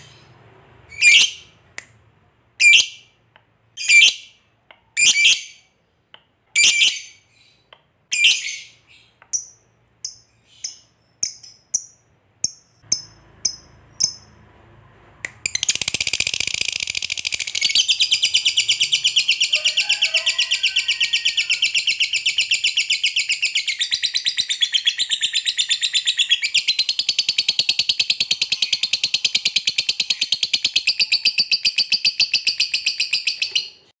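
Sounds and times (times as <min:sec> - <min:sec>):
bird chirping: 0:00.0 - 0:01.7, 0:02.6 - 0:03.2, 0:03.8 - 0:14.4, 0:15.3 - 0:33.9
bird chattering trill: 0:15.5 - 0:19.9.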